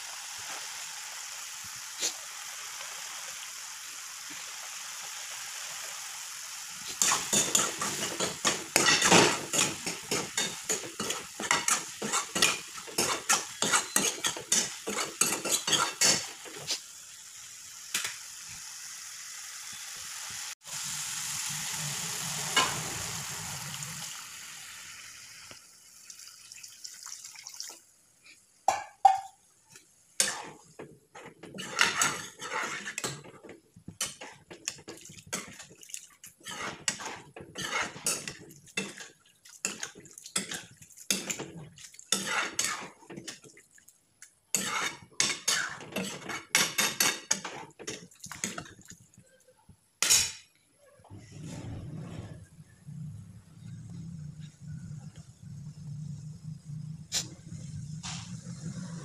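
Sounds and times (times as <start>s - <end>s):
curry sizzling in a pan: 0.0s - 27.0s, 27.7s - 49.1s, 54.0s - 59.0s
ladle scraping and clinking pan: 7.0s - 16.4s, 31.2s - 33.4s, 36.4s - 39.1s, 42.2s - 43.4s, 44.6s - 48.6s.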